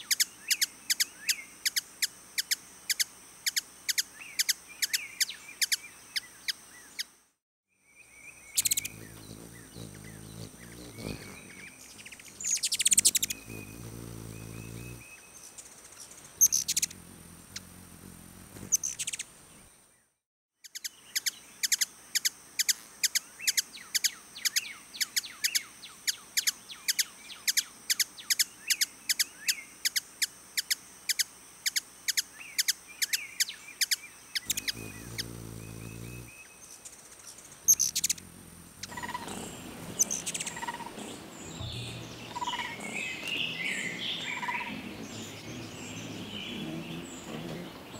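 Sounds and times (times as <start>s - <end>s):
hummingbird chip calls: 8.4s - 15.2s, 16.0s - 19.3s, 30.6s - 47.9s
buzzing hum of wingbeats: 8.6s - 15.2s, 16.1s - 19.5s, 34.4s - 36.5s, 37.3s - 47.9s.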